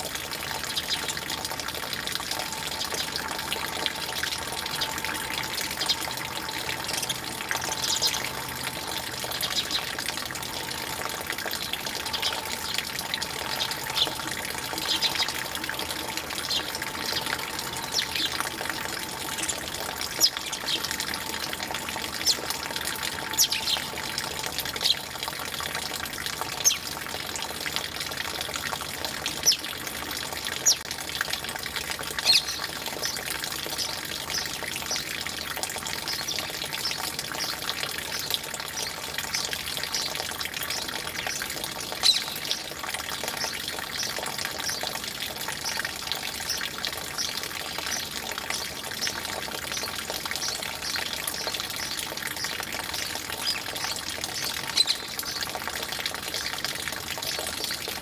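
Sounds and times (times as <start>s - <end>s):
running water: 0.0s - 58.0s
sparrows chirping: 2.7s - 11.1s, 12.0s - 25.0s.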